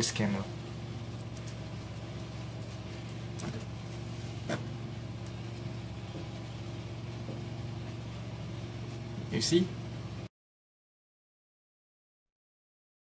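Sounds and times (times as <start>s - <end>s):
low room hum: 0.0s - 10.3s.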